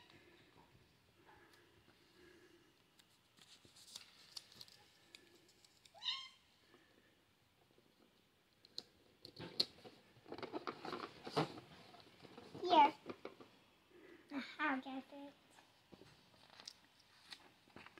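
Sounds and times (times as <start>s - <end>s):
cat meowing: 6.0s - 6.4s
faint clicks and taps: 7.6s - 13.6s.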